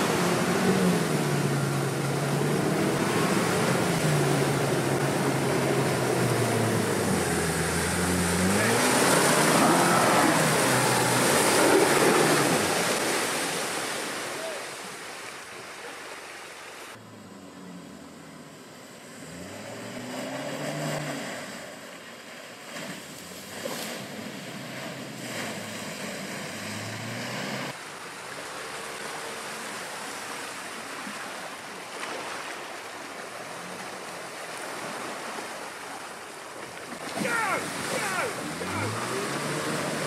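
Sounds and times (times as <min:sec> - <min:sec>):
car engine pulling at low speed: 0:00.0 - 0:13.6, 0:16.9 - 0:22.1, 0:22.8 - 0:30.8, 0:37.0 - 0:40.0
water and mud splashing: 0:00.0 - 0:17.0, 0:19.0 - 0:40.0.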